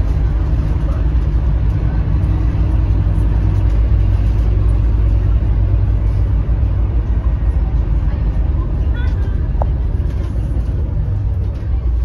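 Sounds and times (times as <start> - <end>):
bus diesel engine rumble: 0.0 - 12.0.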